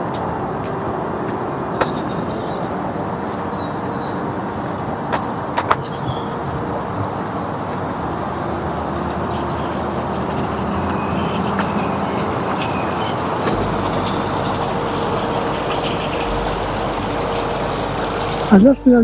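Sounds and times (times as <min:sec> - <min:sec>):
floodwater rushing: 0:06.5 - 0:19.0.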